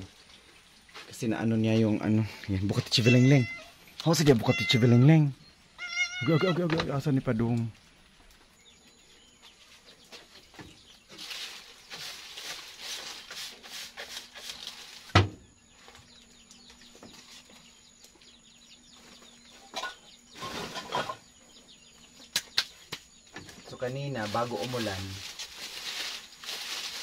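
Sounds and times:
dry leaves rustling and crackling: 9.4s - 15.2s, 23.6s - 27.0s.

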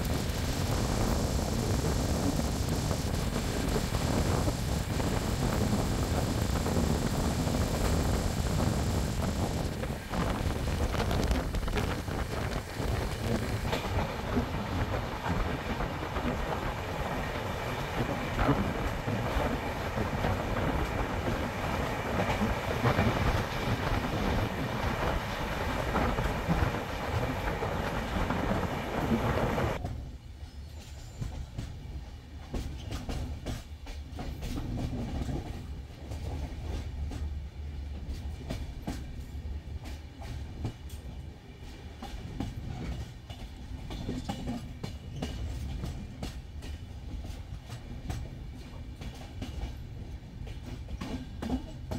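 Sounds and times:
track and wind rush: 0.0s - 29.8s
train wheels clattering: 30.7s - 51.9s.

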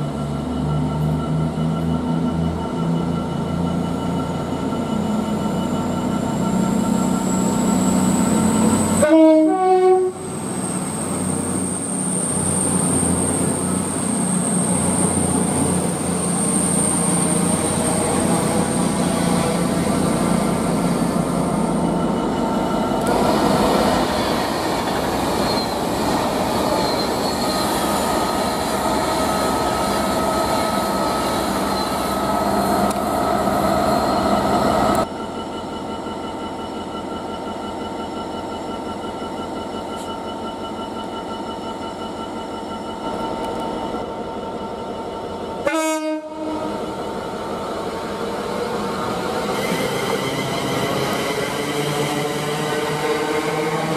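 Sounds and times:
freight locomotive passing: 0.0s - 53.9s
train engine hum: 0.0s - 53.9s
two-tone train horn blast: 8.9s - 10.4s, 45.6s - 46.8s.

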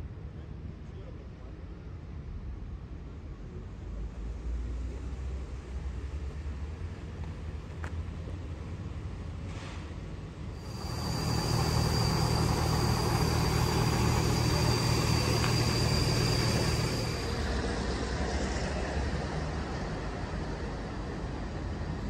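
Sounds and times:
engine running: 10.6s - 17.8s.

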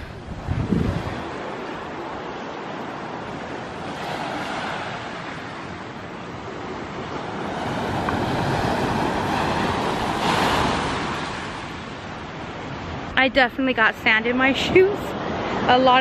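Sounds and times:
wind rumbling on microphone: 0.0s - 16.0s
waves washing on pebble beach: 7.2s - 11.6s.

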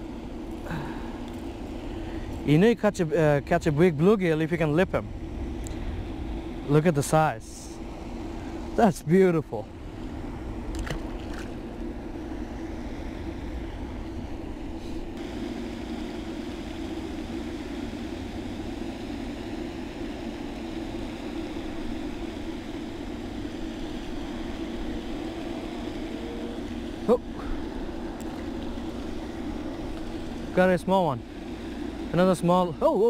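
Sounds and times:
low even hum: 0.0s - 33.0s
wind: 0.0s - 33.0s
moving water: 6.7s - 33.0s.

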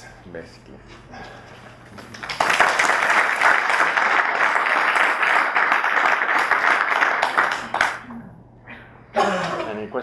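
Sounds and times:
audience applause: 2.1s - 8.0s.

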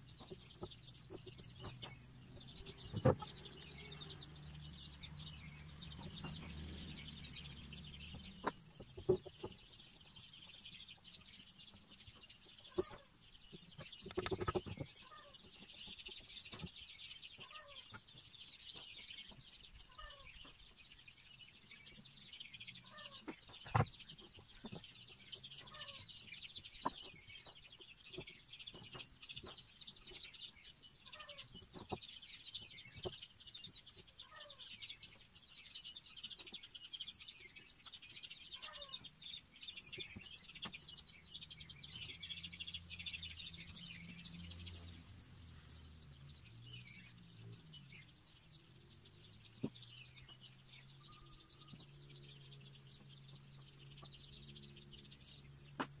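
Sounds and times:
birds chirping and calling: 0.0s - 56.0s.

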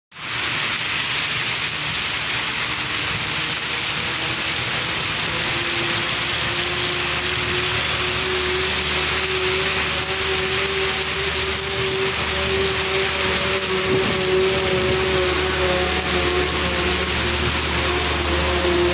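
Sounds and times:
heavy rain pouring on street: 0.1s - 18.9s.

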